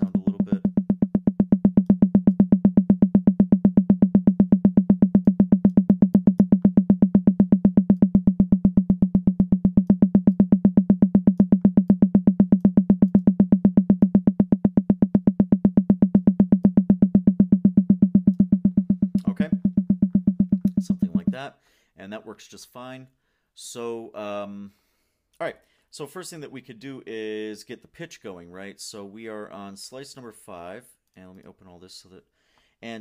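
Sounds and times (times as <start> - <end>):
high tom drum hits: 0.0 - 21.4.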